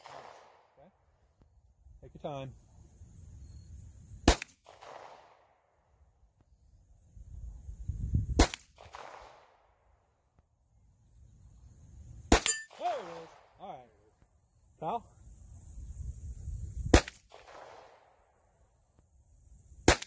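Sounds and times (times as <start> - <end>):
pistol shots with echo: 4.2 - 5.5, 8.4 - 9.6, 12.3 - 13.5.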